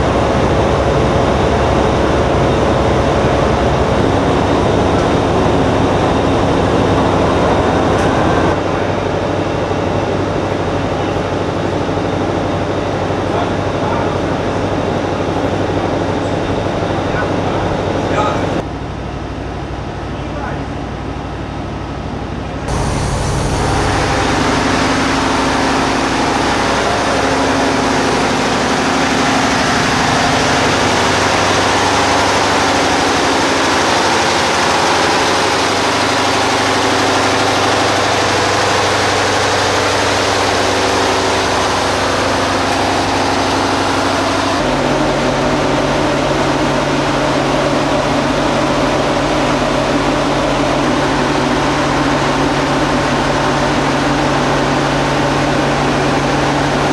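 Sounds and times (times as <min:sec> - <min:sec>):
large diesel engine running: 0:00.0 - 0:56.9
deep hum: 0:20.9 - 0:56.9.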